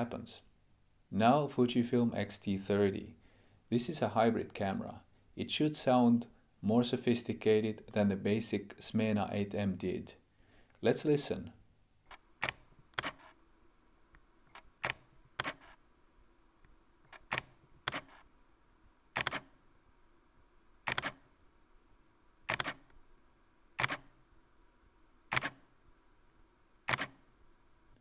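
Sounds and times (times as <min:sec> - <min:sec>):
camera shutter clicks: 0:12.1 - 0:13.4, 0:14.5 - 0:15.8, 0:17.1 - 0:18.3, 0:19.2 - 0:19.5, 0:20.9 - 0:21.2, 0:22.5 - 0:22.9, 0:23.8 - 0:24.1, 0:25.3 - 0:25.6, 0:26.9 - 0:27.2.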